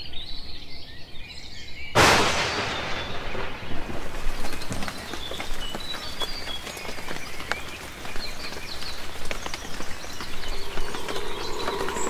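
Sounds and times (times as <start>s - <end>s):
birds chirping: 2.5s - 12.0s
steady low and high tones: 10.2s - 12.0s.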